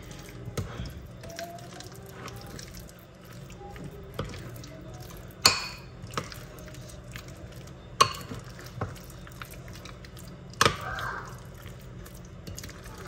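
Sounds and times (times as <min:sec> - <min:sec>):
spoon stirring thick batter: 0:00.0 - 0:13.0
spoon clinking against glass bowl: 0:05.4 - 0:06.3.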